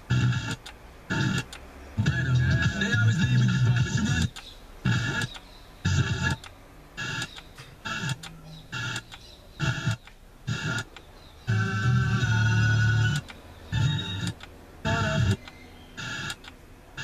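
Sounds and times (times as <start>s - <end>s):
radio bursts of voice or music: 2.0s - 5.3s, 5.9s - 6.4s, 13.8s - 15.4s.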